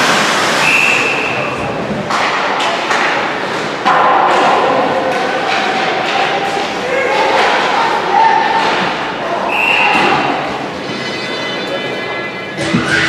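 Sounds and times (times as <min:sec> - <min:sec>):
referee's whistle blast: 0:00.6 - 0:01.5, 0:09.5 - 0:10.4
hockey sticks and puck knocking: 0:02.0 - 0:07.8
voices shouting: 0:05.0 - 0:10.8.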